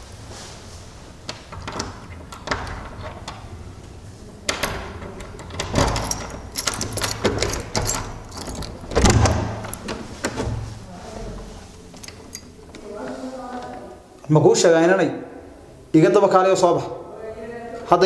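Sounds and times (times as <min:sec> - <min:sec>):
door handle and lock rattling: 0:01.3 - 0:03.8, 0:04.4 - 0:10.6, 0:11.9 - 0:12.9.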